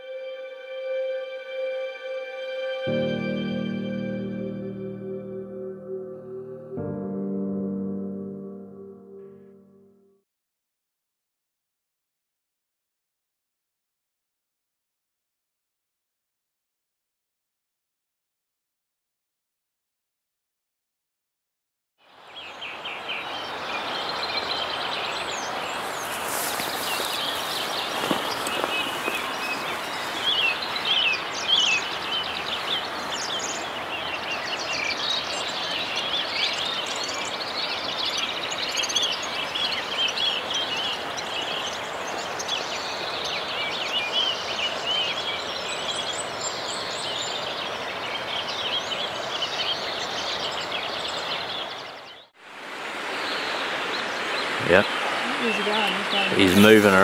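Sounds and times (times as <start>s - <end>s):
stream water rushing: 22.1s - 57.0s
small birds singing and chirping: 22.2s - 52.3s, 53.2s - 57.0s.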